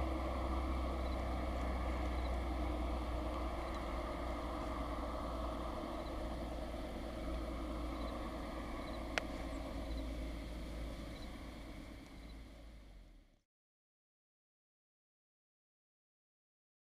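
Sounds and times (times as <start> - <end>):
low rumble: 0.0 - 13.4.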